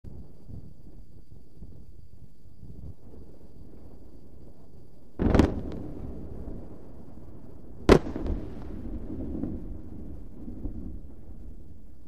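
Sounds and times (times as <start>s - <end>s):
low rumble of burning fireball: 0.0s - 12.0s
sharp explosion bang: 5.2s - 5.9s, 7.9s - 9.1s.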